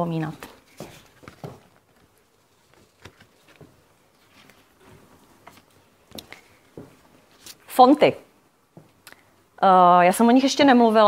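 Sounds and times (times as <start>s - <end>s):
footsteps on floor: 0.4s - 1.8s, 3.5s - 7.1s.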